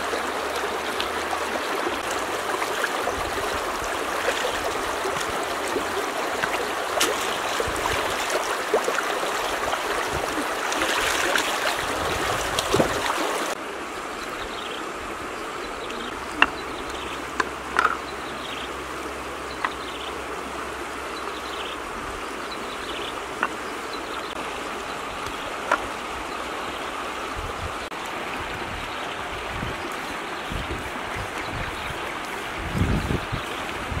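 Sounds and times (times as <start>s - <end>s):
river rushing over rocks: 0.0s - 19.5s.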